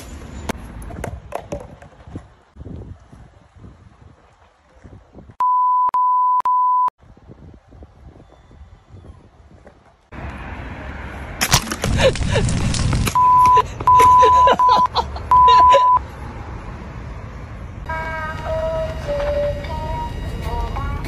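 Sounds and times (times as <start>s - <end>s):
censor beeps: 5.4s - 7.0s, 13.2s - 16.0s.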